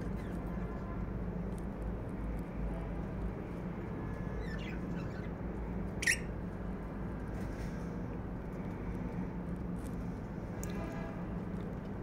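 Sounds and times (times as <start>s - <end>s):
lovebirds chirping: 4.4s - 5.4s, 6.0s - 6.3s
bird sharp squeak: 6.0s - 6.3s.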